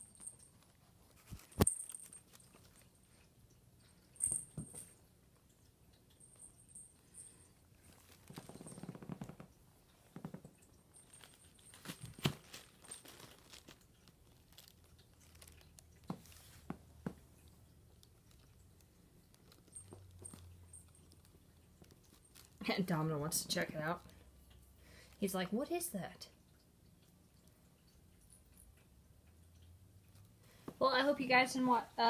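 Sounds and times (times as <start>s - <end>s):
rustling and crinkling of toys: 0.0s - 3.0s, 7.8s - 24.1s.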